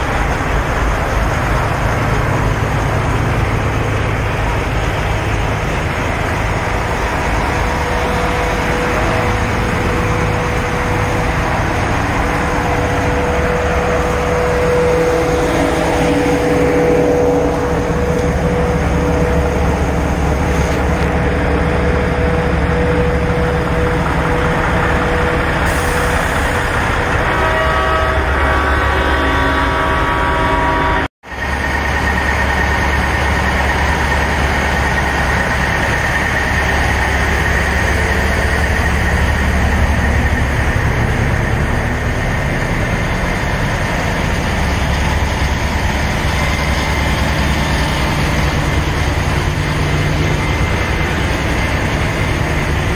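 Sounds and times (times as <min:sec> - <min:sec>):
diesel engines idling: 0:00.0 - 0:52.9
held multi-pitch horn tone: 0:07.2 - 0:31.1.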